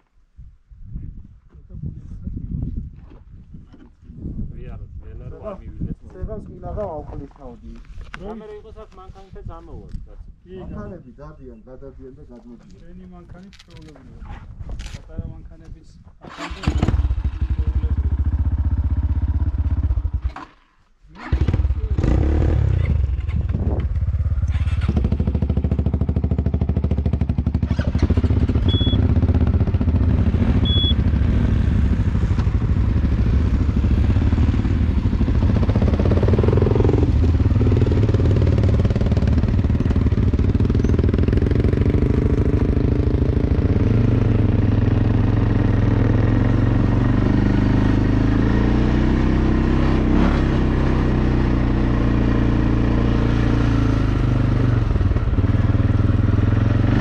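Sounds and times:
vehicle engine running: 23.1s - 43.8s
short high beeps: 28.6s - 29.1s, 30.6s - 31.0s.

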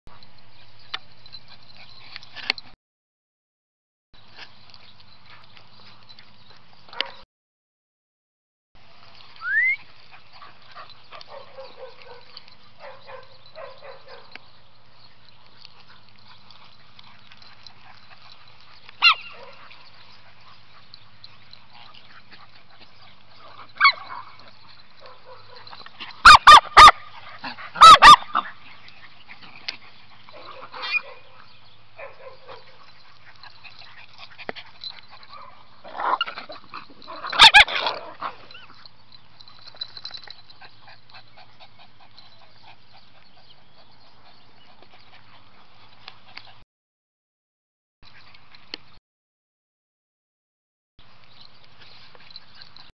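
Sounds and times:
small dogs yapping: 15.2s - 45.6s.

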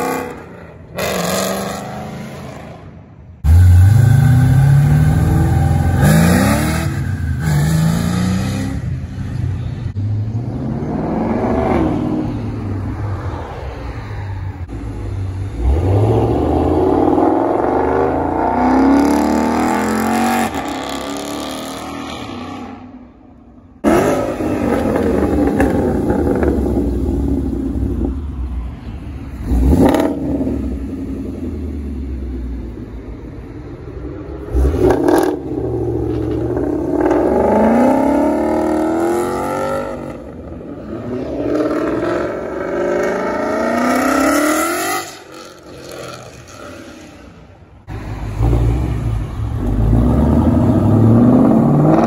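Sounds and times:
car engine revving: 3.4s - 8.8s, 23.8s - 28.1s, 29.4s - 32.0s, 34.4s - 52.0s.

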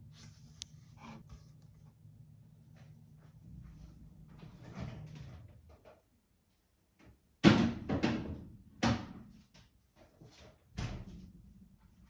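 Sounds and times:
kitchen items knocking and clunking: 7.0s - 9.4s.

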